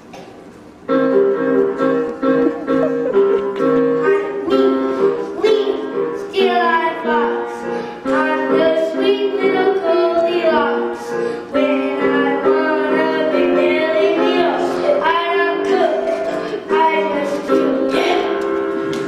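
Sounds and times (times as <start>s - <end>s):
instrumental accompaniment: 0.7s - 19.0s
child singing into microphone: 3.6s - 18.7s.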